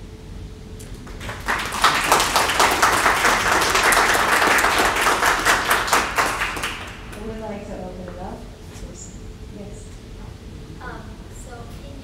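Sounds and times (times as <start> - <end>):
audience applause: 0.8 - 7.2.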